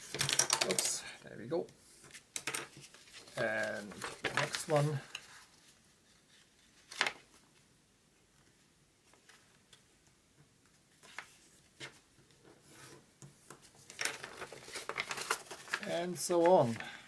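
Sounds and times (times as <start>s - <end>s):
paper folding clicks: 0.0s - 1.0s, 13.5s - 16.8s
paper rustling: 0.0s - 1.0s, 1.9s - 7.4s, 10.9s - 17.0s.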